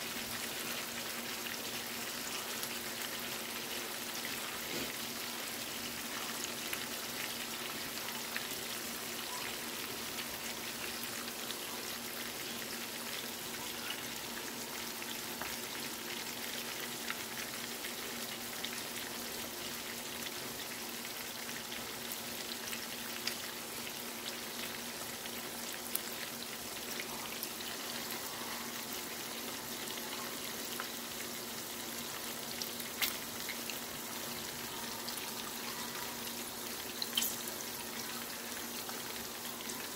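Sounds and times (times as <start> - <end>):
faint steady hum: 0.0 - 39.9
pork chops sizzling in a pan: 0.0 - 39.9
small pops and crackles: 33.0 - 33.6, 37.0 - 37.5.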